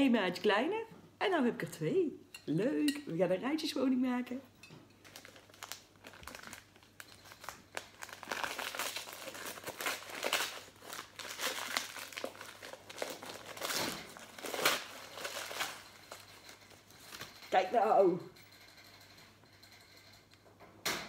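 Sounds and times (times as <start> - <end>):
wrapping paper crinkling: 5.0 - 17.3.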